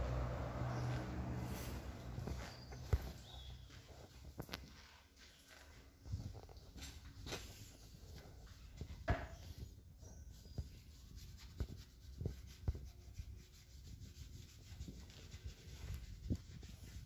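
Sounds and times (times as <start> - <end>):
rubbing and scrubbing tyre: 0.0 - 5.7, 9.4 - 17.0.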